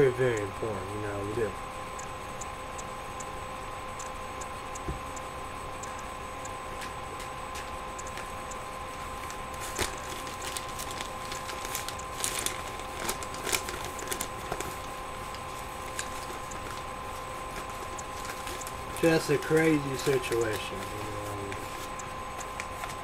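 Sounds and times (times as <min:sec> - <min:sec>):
faint constant whine: 0:00.0 - 0:23.0
steady background hum: 0:00.0 - 0:23.0
small clicks and crackles: 0:06.8 - 0:23.0.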